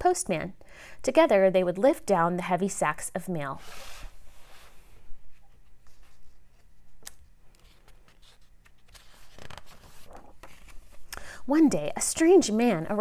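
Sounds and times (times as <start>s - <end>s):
paper page turning: 5.8s - 11.1s.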